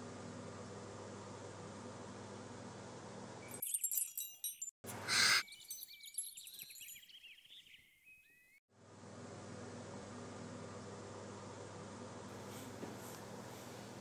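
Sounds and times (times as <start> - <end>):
high tinkling chimes: 3.4 - 8.6.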